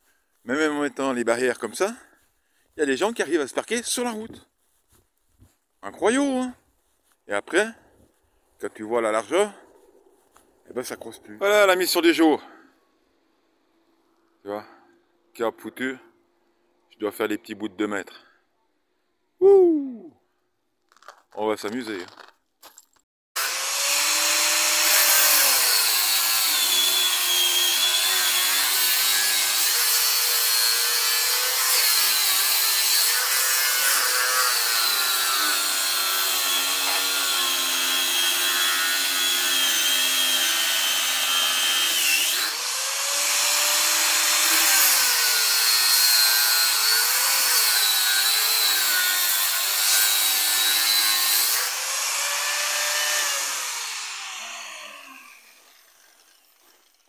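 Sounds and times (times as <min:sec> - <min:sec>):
angle grinder cutting steel cables: 0:23.4 - 0:57.0.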